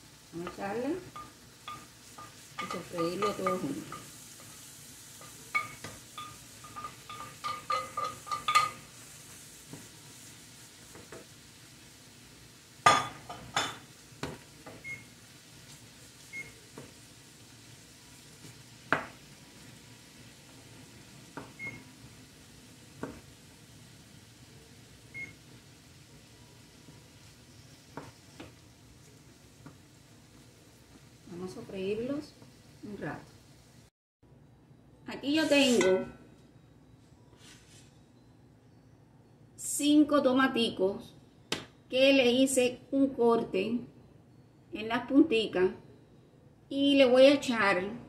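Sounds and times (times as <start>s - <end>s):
faint sizzle: 0.0s - 48.0s
spoon knocking frying pan: 0.4s - 4.6s, 5.2s - 8.9s, 12.8s - 14.9s, 18.4s - 19.2s, 21.3s - 21.7s, 27.9s - 28.6s.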